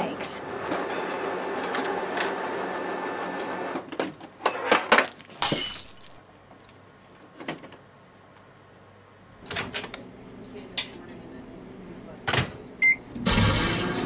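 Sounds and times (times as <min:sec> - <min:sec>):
photocopier running: 0:00.4 - 0:03.8.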